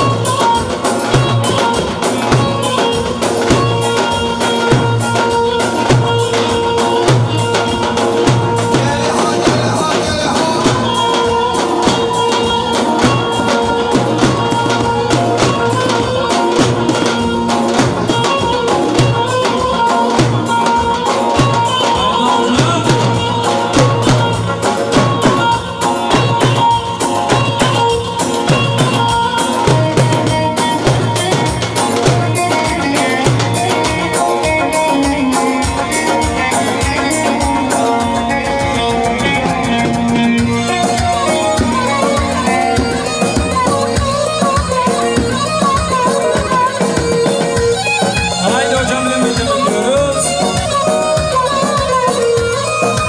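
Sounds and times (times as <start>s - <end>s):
bass drums beaten with sticks: 0.0s - 34.6s
sustained melody line: 0.0s - 53.0s.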